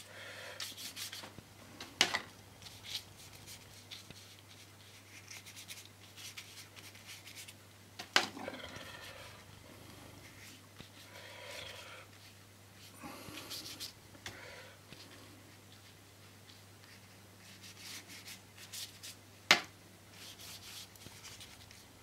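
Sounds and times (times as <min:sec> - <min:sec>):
paintbrush scratching on paper: 0:00.6 - 0:01.2, 0:02.6 - 0:07.6, 0:10.2 - 0:14.0, 0:15.8 - 0:19.2, 0:20.2 - 0:21.8.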